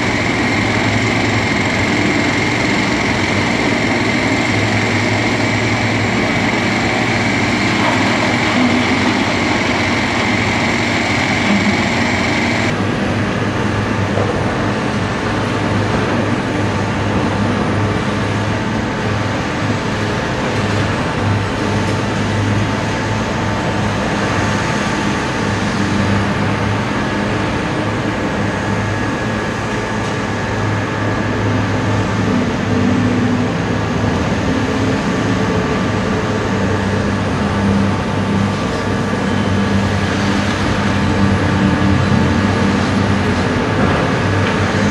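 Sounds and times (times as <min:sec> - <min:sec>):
excavator diesel engine running: 0:00.0 - 0:44.9
high steady whine: 0:00.0 - 0:44.9.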